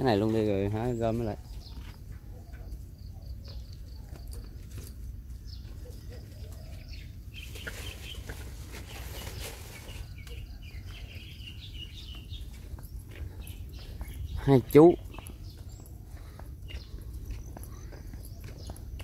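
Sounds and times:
birds chirping: 0.0s - 19.0s
brush and leaves rustling: 3.8s - 19.0s.

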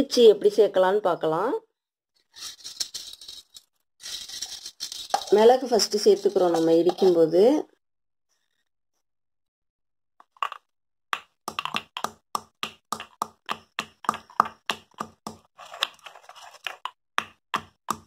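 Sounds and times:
stone pestle pounding peppercorns: 11.2s - 15.5s, 17.2s - 18.0s.

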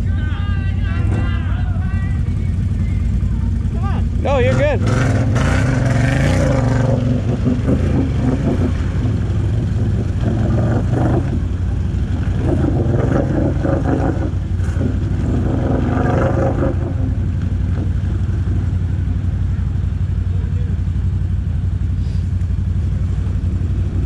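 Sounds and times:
quad engine revving: 2.8s - 19.3s.

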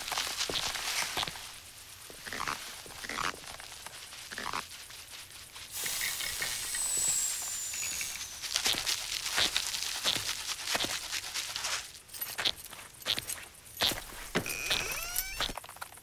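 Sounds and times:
pellets pattering onto soil: 0.0s - 16.0s
steady hiss: 3.7s - 11.5s
thin high whistle: 5.8s - 9.1s.

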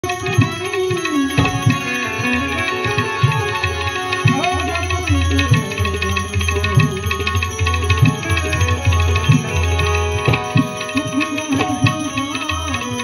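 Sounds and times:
harmonium: 0.0s - 13.0s
keyed banjo melody: 0.0s - 13.0s
small hand cymbals: 0.0s - 13.0s
tabla strokes: 0.0s - 13.0s
man singing: 1.3s - 8.7s, 9.4s - 13.0s.

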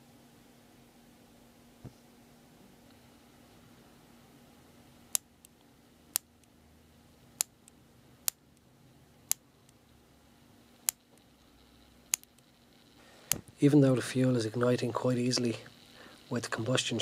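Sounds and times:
spark generator clicking: 5.1s - 6.6s, 7.3s - 9.9s, 10.8s - 17.0s.

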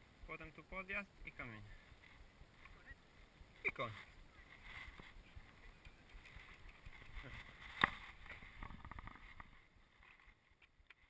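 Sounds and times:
camera handling rustling and knocks: 6.1s - 11.0s.

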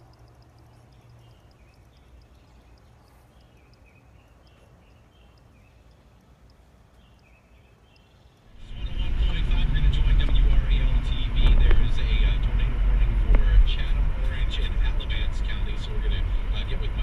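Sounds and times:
quick high ticks: 0.0s - 7.3s
low wind rumble: 3.6s - 17.0s.

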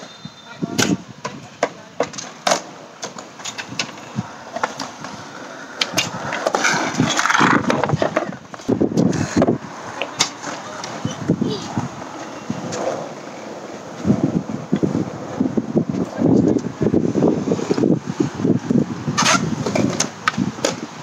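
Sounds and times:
skateboard wheels rolling on concrete: 0.0s - 21.0s
skateboard clacks and knocks: 0.8s - 16.7s.

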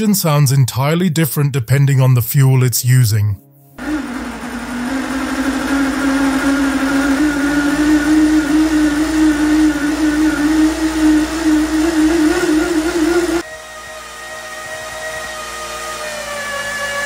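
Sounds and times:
two-stroke engine running: 3.8s - 17.0s.

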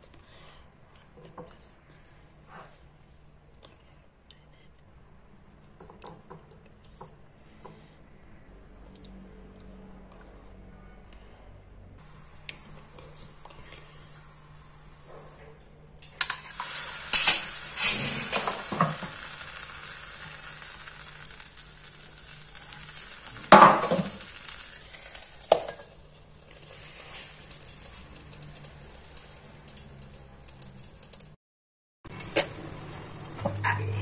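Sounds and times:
charcoal ember sizzling: 12.0s - 15.3s, 16.0s - 31.4s, 32.1s - 34.0s.

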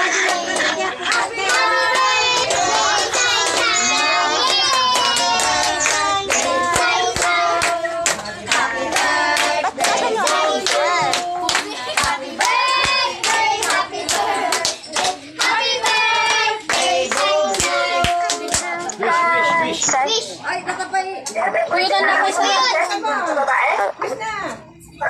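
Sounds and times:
children clapping: 0.0s - 18.7s
children singing: 0.0s - 19.7s.

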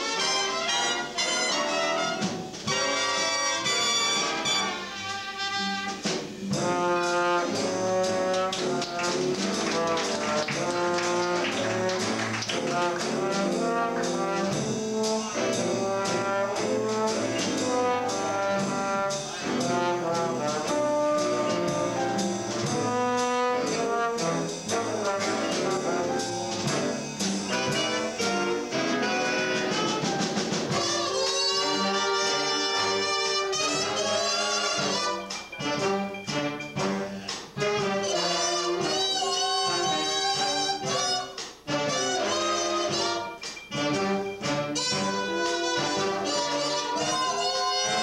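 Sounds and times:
brass section melody: 0.0s - 48.0s
drums: 0.0s - 48.0s
jazz big band playing: 0.0s - 48.0s.

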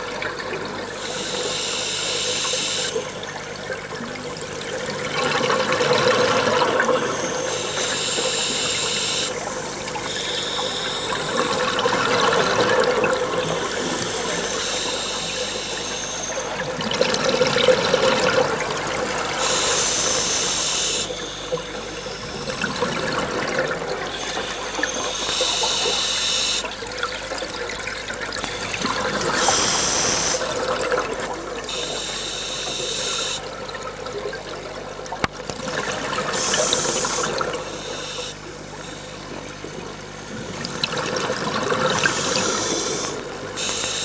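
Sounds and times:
regulator inhalation hiss: 1.0s - 3.0s, 7.1s - 9.4s, 13.4s - 16.5s, 19.3s - 22.4s, 24.1s - 26.7s, 28.6s - 30.5s, 31.7s - 33.4s, 36.3s - 38.4s, 42.0s - 44.0s
exhaled bubbles rushing: 9.3s - 25.9s, 26.7s - 31.7s, 38.5s - 43.6s.

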